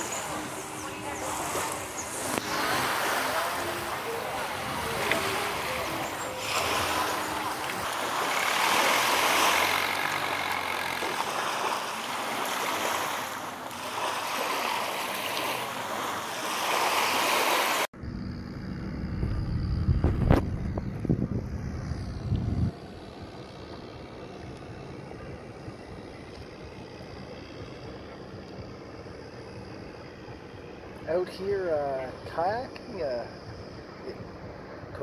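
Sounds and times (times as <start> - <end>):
small waves washing on beach: 0.0 - 17.9
wind buffeting microphone: 18.7 - 31.0.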